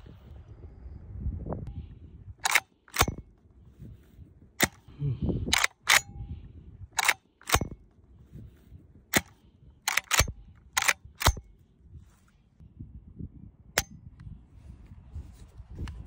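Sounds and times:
shotgun action clicking: 0:02.4 - 0:03.2, 0:05.5 - 0:06.1, 0:07.0 - 0:07.8, 0:09.1 - 0:11.5.

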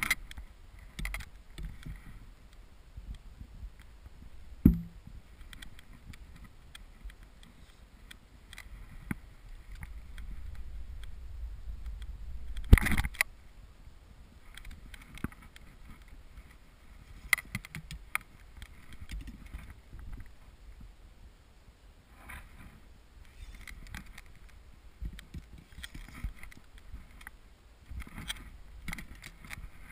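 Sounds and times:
wind rumble on microphone: 0:00.0 - 0:07.2, 0:07.9 - 0:21.3.

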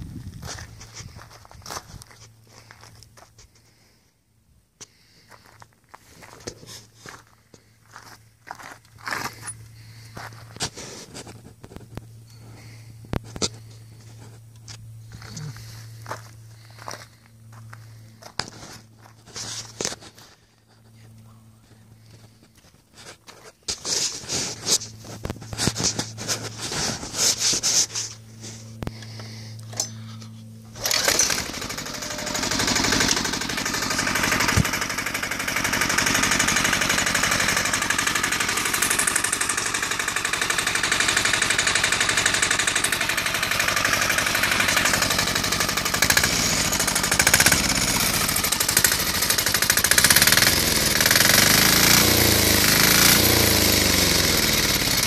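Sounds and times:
low steady hum: 0:00.0 - 0:35.3
diesel engine clattering: 0:06.2 - 0:22.6, 0:23.8 - 0:55.0.

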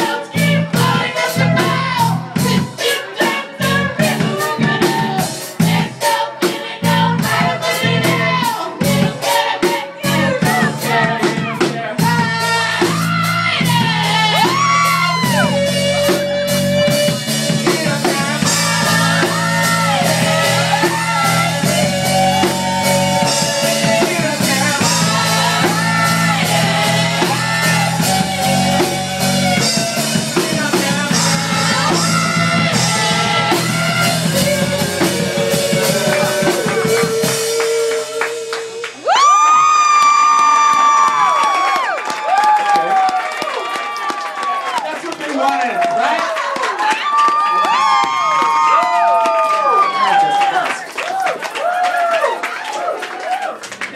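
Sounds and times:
bass guitar: 0:00.0 - 0:06.0, 0:06.6 - 0:09.2, 0:09.9 - 0:39.4
person singing: 0:00.0 - 0:39.6
drum kit: 0:00.0 - 0:43.2
guitar: 0:10.0 - 0:39.1.

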